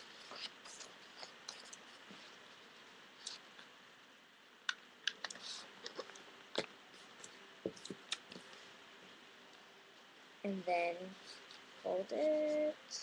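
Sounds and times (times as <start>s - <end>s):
paper folding and creasing: 0.0s - 2.4s.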